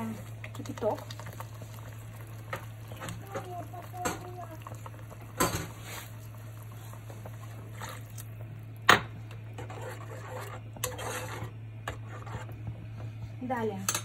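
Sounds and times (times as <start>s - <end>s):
water pouring into saucepan: 0.0s - 8.3s
steady low hum: 0.0s - 14.0s.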